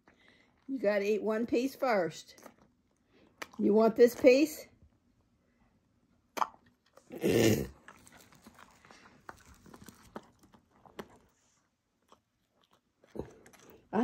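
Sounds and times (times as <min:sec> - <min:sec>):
wet mouth clicks: 0:06.3 - 0:07.1.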